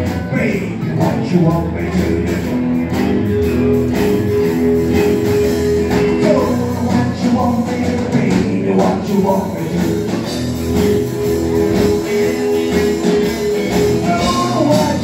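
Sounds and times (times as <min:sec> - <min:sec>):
person singing: 0:00.0 - 0:03.0, 0:05.0 - 0:15.0
rock and roll band playing: 0:00.0 - 0:15.0.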